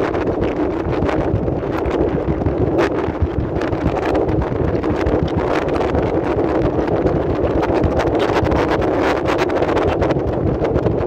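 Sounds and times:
wind blowing across microphone: 0.0s - 11.0s.

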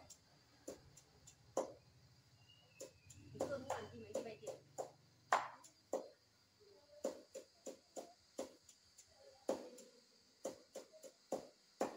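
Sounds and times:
faint high hiss: 0.0s - 11.9s
knife chopping on wooden board: 7.0s - 8.6s, 9.5s - 9.8s, 10.4s - 11.9s.

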